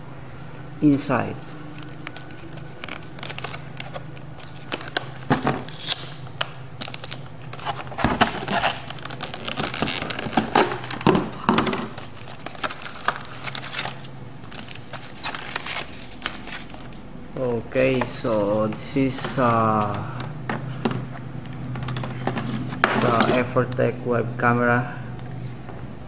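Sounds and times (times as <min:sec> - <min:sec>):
plastic blister pack crackling: 0:01.3 - 0:16.8.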